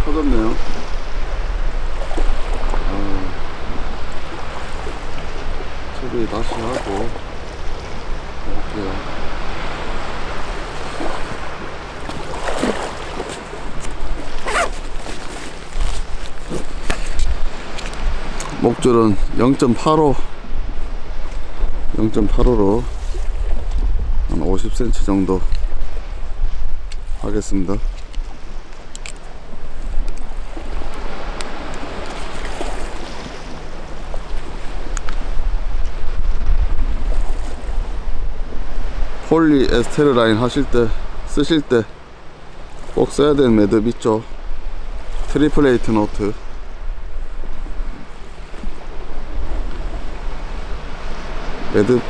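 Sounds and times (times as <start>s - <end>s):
sea waves: 0.0s - 52.0s
wind rumbling on microphone: 0.0s - 52.0s
clothing and gear rustling: 12.0s - 18.1s.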